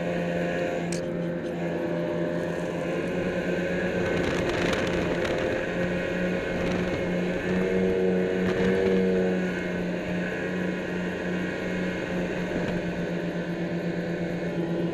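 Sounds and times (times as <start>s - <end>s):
rushing wind and snow: 0.0s - 14.9s
snowmobile engine drone: 0.0s - 14.9s.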